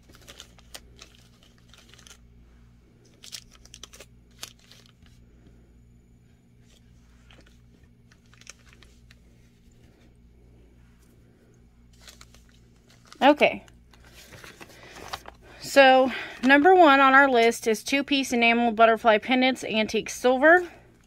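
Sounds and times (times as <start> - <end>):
plastic bags of beads crinkling: 0.0 - 2.2, 3.0 - 5.2, 6.7 - 9.7, 11.9 - 15.8
steady low hum: 0.0 - 21.0.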